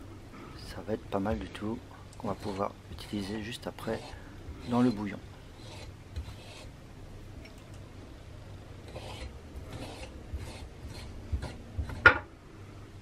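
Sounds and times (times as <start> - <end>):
knife scraping cutting board: 2.2 - 6.7, 8.9 - 12.2.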